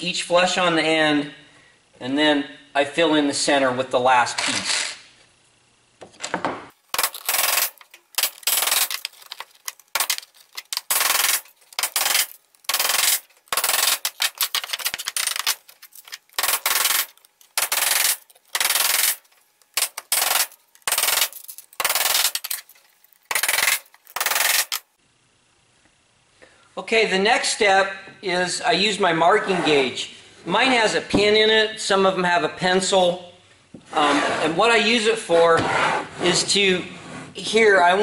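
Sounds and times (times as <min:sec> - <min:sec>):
hammer driving nails into wood: 0:06.9 - 0:19.2, 0:19.8 - 0:22.6, 0:23.3 - 0:24.8.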